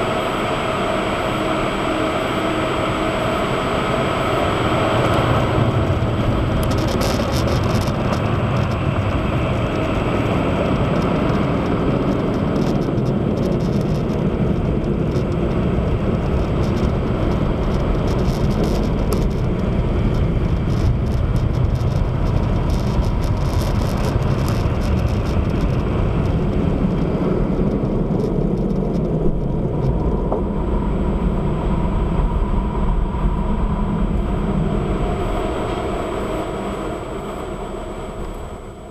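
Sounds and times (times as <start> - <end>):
faint crackle: 4.6 - 30.7.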